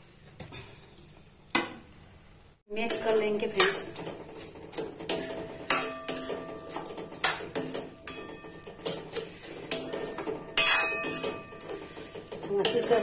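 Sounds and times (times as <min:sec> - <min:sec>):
metal spoon scraping pan: 0:02.7 - 0:13.0
spoon clinking on pan rim: 0:05.1 - 0:13.0.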